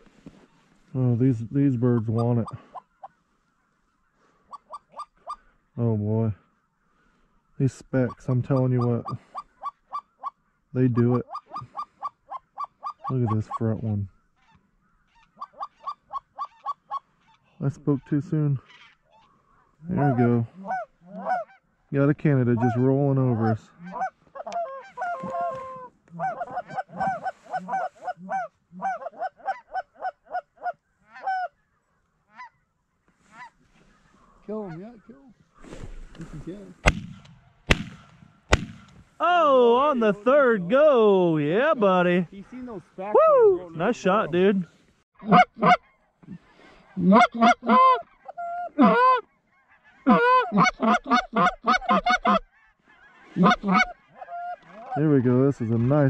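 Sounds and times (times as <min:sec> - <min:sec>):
goose honking and clucking: 0:01.2 - 0:03.8, 0:04.4 - 0:05.9, 0:07.6 - 0:36.7, 0:43.8 - 0:56.0.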